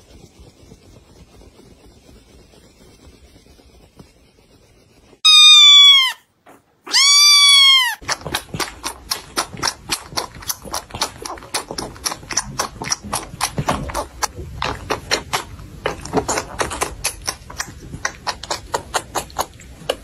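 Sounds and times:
cat meowing: 5.2 - 6.3, 6.9 - 8.0
kitten suckling from bottle: 6.9 - 20.0.

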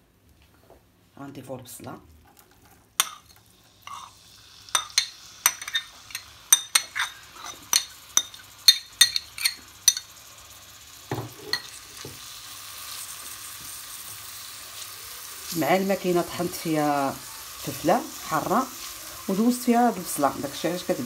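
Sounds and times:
onion frying sizzle: 2.1 - 21.0
metal spoon clinking against glass bowl: 3.0 - 3.3, 3.9 - 4.1, 4.8 - 10.1
spoon knocking in pan: 4.8 - 10.1.

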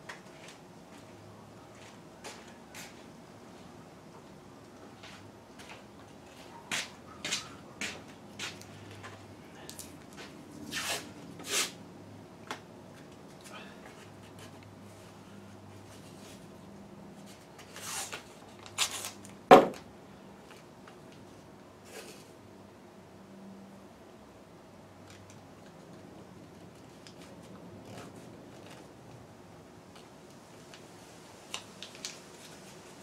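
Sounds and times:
clicks and rustles of hand work: 25.0 - 29.3.

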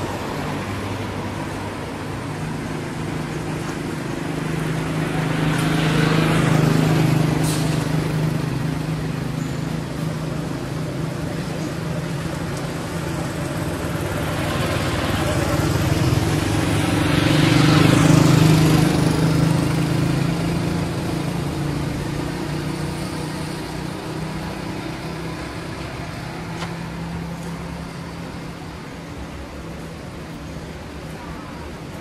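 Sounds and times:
vehicle engine passing by: 12.9 - 28.6.

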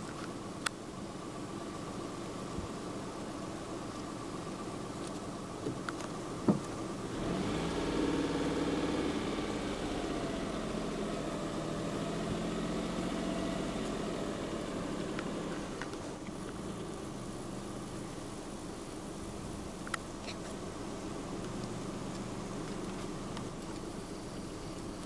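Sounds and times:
vehicle engine idling: 0.0 - 25.0.

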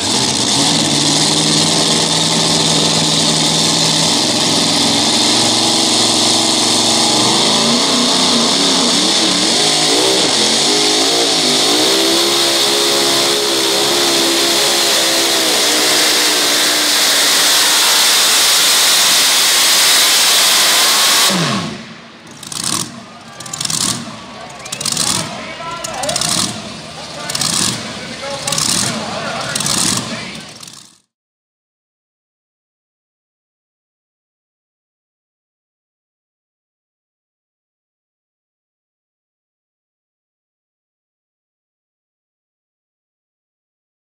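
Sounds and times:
truck engine at full throttle: 0.0 - 31.1.

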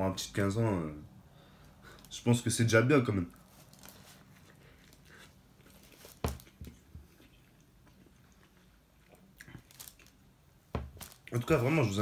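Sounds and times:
person chewing food: 3.9 - 11.3.

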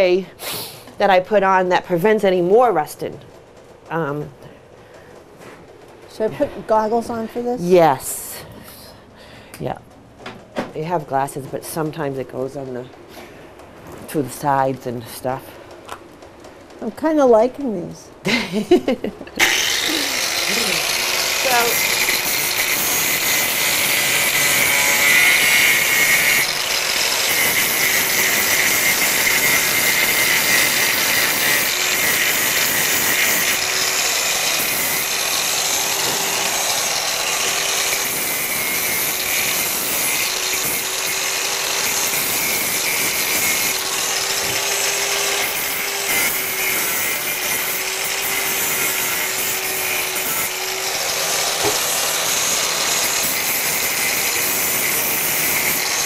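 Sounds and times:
angle grinder grinding metal: 19.4 - 56.0.

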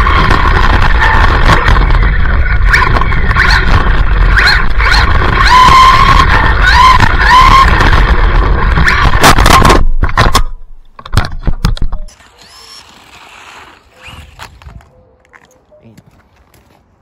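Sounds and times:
toy car crashing and tumbling: 0.0 - 14.9
electric motor whining: 12.1 - 14.9
tyres on wet pavement: 12.1 - 17.0.

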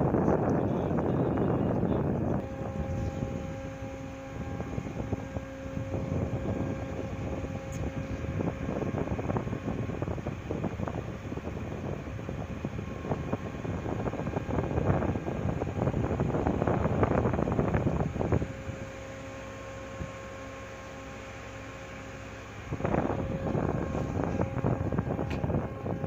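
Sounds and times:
ship machinery hum: 0.0 - 26.0
wind buffeting microphone: 0.0 - 26.0.

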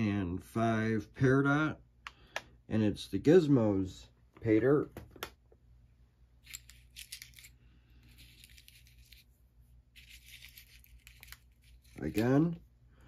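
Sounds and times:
rustling of small items: 6.4 - 12.6.

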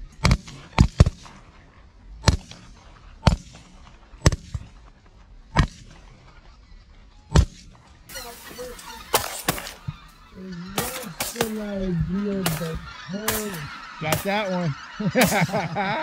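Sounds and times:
shotgun shots: 8.1 - 10.1, 12.4 - 14.6, 15.2 - 15.7.

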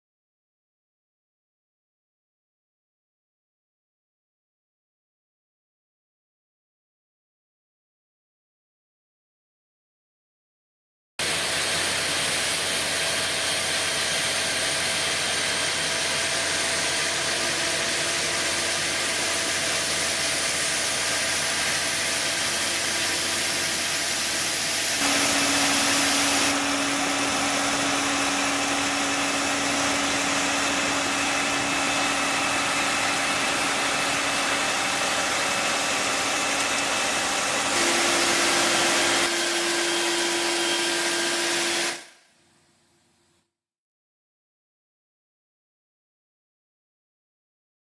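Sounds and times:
truck engine and pump hum: 11.2 - 41.7
loud water jet hiss: 11.2 - 42.0.

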